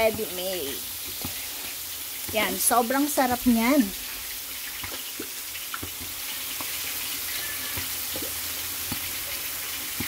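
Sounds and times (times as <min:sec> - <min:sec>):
vegetables sizzling in a pan: 0:00.0 - 0:10.0
small pops and crackles: 0:04.7 - 0:06.8.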